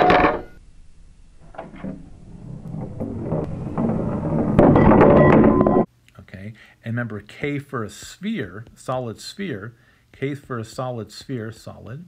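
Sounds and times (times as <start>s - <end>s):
hoop and disc rolling down ramp: 0.0s - 5.9s.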